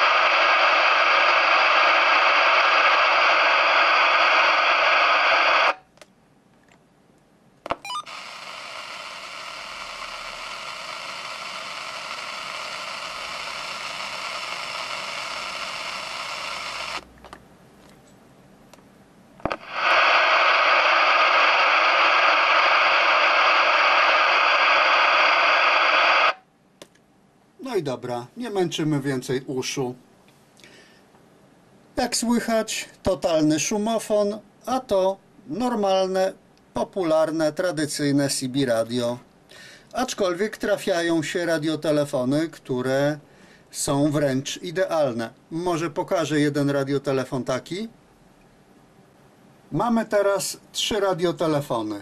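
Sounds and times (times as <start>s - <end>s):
loud radio receiver hiss: 0.0s - 5.9s, 7.7s - 17.1s, 19.4s - 26.5s, 32.0s - 48.0s
quiet radio receiver hiss: 0.0s - 52.0s.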